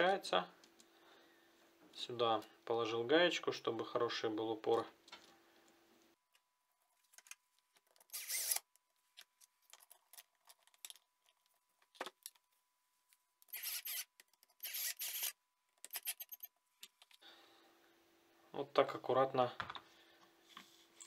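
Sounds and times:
plastic and metal parts handled: 6.9s - 8.5s, 9.1s - 12.6s
cordless drill driving screws: 8.1s - 8.6s, 13.5s - 16.4s.

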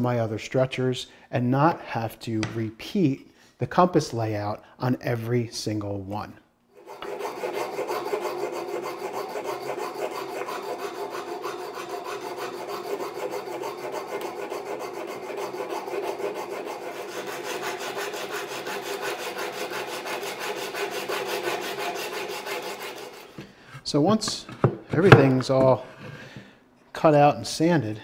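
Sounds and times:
sandpaper rubbing on wood: 6.8s - 23.4s.

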